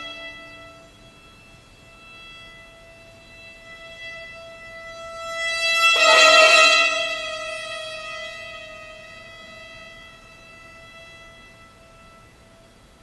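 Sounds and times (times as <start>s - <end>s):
solo violin: 3.7s - 8.1s.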